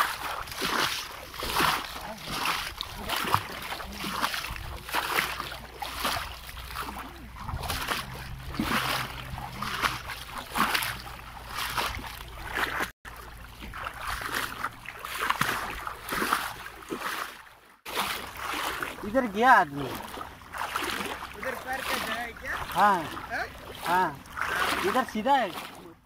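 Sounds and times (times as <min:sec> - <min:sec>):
footsteps splashing in water: 0:00.0 - 0:26.0.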